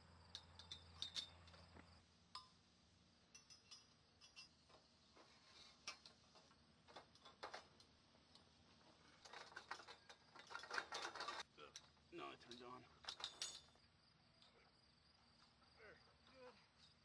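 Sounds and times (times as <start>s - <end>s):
crickets chirping: 0.0s - 8.1s, 9.3s - 17.0s
metal poles clinking: 0.3s - 1.7s, 3.3s - 4.7s, 9.2s - 13.8s.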